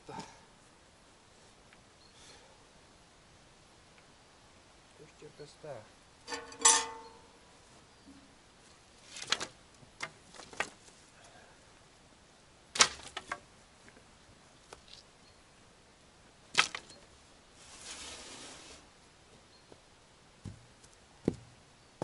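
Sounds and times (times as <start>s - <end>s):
rustling: 8.6s - 11.2s, 16.5s - 18.9s.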